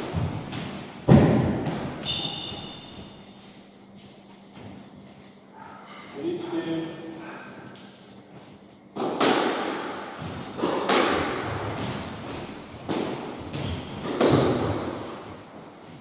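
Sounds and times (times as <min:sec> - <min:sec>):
squash ball smacks: 0:09.0 - 0:15.2.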